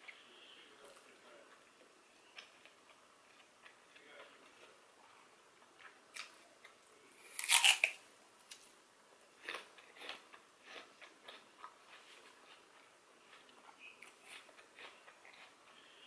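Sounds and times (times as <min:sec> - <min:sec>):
chewing crunches: 0:05.8 - 0:08.6, 0:09.4 - 0:15.8
apple crunch bite: 0:07.2 - 0:08.7.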